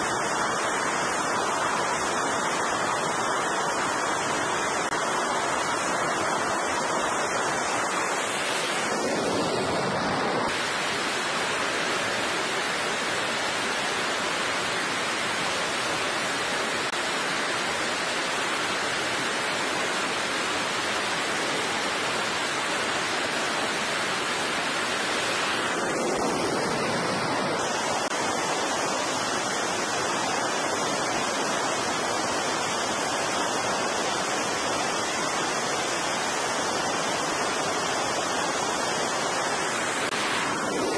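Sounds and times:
jet engines rushing: 0.0 - 14.1, 23.9 - 31.4, 36.7 - 40.9
wind: 0.0 - 40.9.

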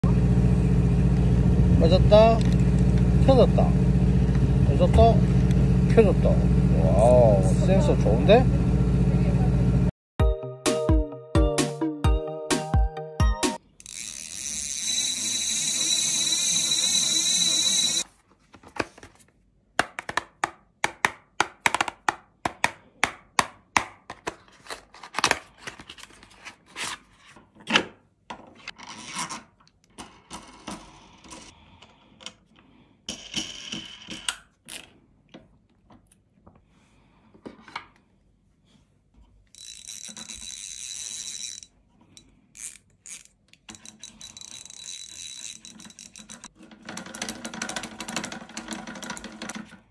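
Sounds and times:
hand-cranked spooling machine whirring: 13.8 - 18.1, 39.5 - 49.9
spool clicks and knocks: 43.1 - 49.8.

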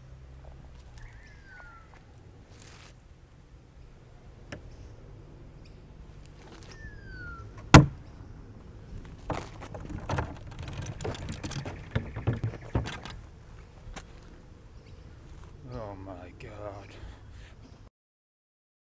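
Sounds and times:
rustling: 1.9 - 3.1, 6.1 - 6.9, 8.8 - 14.4
clattering knocks: 7.6 - 8.0, 9.1 - 13.3
loud sharp thump: 7.6 - 8.0.

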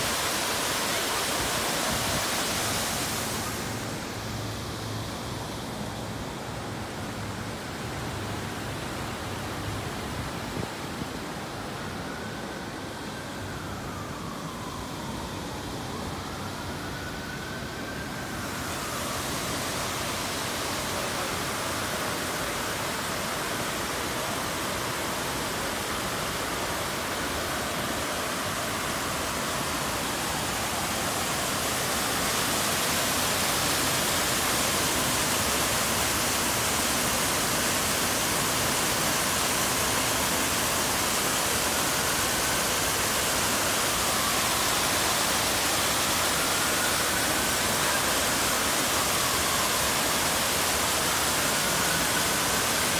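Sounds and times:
fountain water splashing: 0.0 - 52.9.

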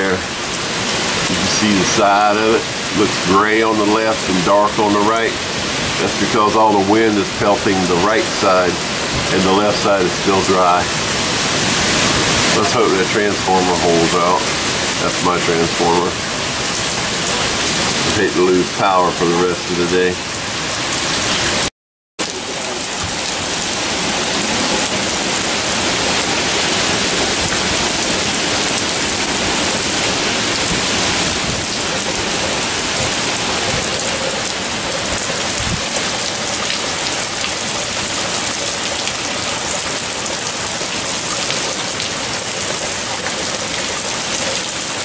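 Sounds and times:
strong wind: 0.0 - 15.1, 22.9 - 36.2
heavy rain on pavement: 0.0 - 45.0.

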